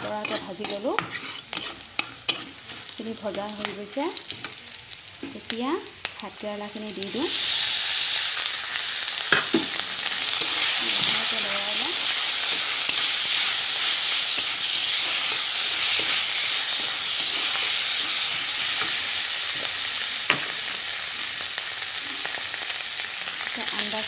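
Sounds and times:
spatula scraping metal pan: 0:00.0 - 0:02.9
food sizzling in hot oil: 0:00.0 - 0:24.0.

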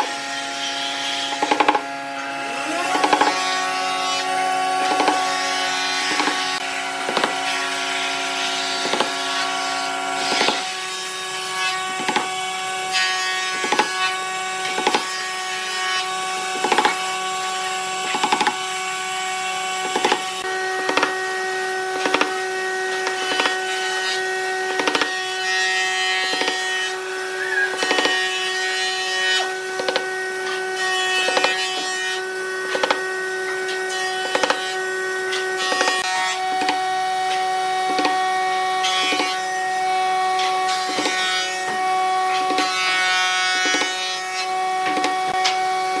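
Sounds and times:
hammer hitting nails into wood: 0:01.3 - 0:01.8, 0:04.8 - 0:05.3, 0:06.1 - 0:06.4, 0:07.1 - 0:07.4, 0:08.8 - 0:09.2, 0:10.3 - 0:10.6, 0:12.0 - 0:12.3, 0:13.5 - 0:13.9, 0:16.6 - 0:17.0, 0:18.0 - 0:18.6, 0:19.8 - 0:20.2, 0:20.8 - 0:21.2, 0:22.0 - 0:22.4, 0:23.0 - 0:23.6, 0:24.7 - 0:25.2, 0:26.3 - 0:26.6, 0:27.8 - 0:28.2, 0:29.8 - 0:30.1, 0:34.2 - 0:34.6, 0:36.6 - 0:36.8, 0:37.9 - 0:38.2.

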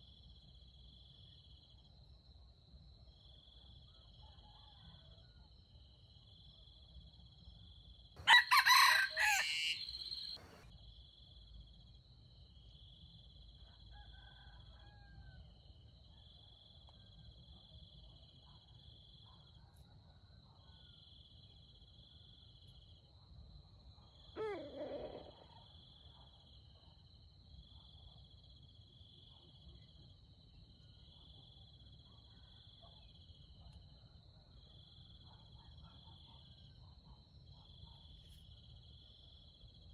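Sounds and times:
faint fowl call: 0:08.2 - 0:10.6
insects trilling: 0:08.2 - 0:10.6
rooster crowing: 0:08.2 - 0:10.6, 0:13.9 - 0:15.4.

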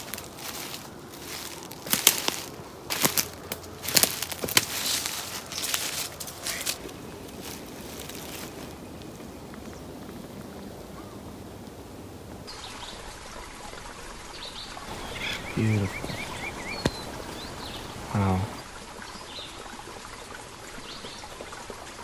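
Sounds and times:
footsteps through grass and leaves: 0:00.0 - 0:10.4, 0:14.9 - 0:18.6
small birds chirping: 0:00.0 - 0:11.4, 0:14.3 - 0:19.6
steady outdoor hiss: 0:00.0 - 0:22.0.

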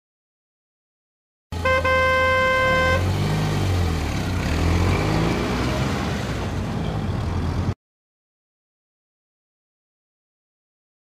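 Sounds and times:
car horn: 0:01.6 - 0:03.1
car engine revving: 0:01.6 - 0:06.5.

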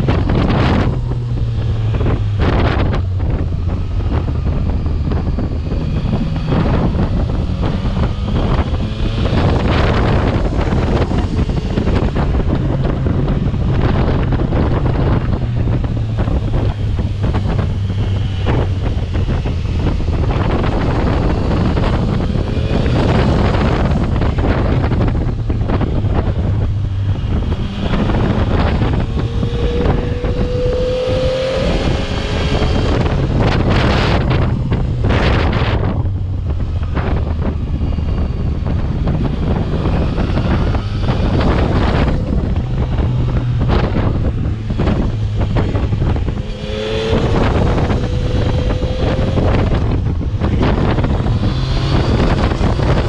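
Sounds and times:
motorcycle engine running: 0:00.0 - 0:53.0
wind buffeting microphone: 0:00.0 - 0:53.0.

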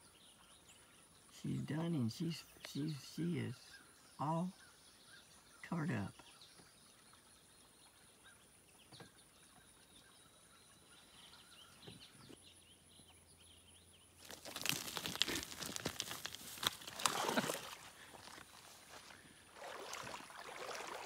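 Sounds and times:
faint bird chirps: 0:00.0 - 0:14.2
dense crackling and clicks: 0:14.2 - 0:17.1.

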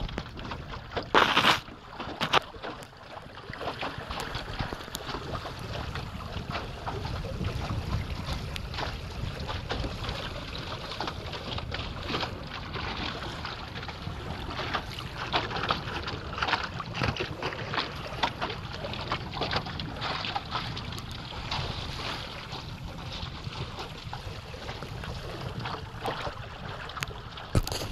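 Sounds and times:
wind rumble on microphone: 0:00.0 - 0:01.6, 0:03.1 - 0:27.9
water splashing against boat hull: 0:00.0 - 0:27.9.

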